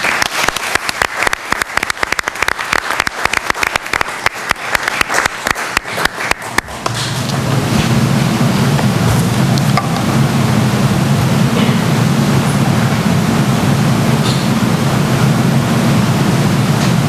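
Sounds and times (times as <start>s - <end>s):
audience applause: 0.0s - 6.9s
steady low hum: 0.0s - 17.0s.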